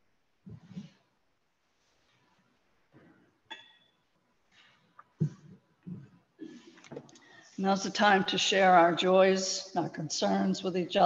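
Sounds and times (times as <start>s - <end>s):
faint shuffle: 0.4s - 3.3s.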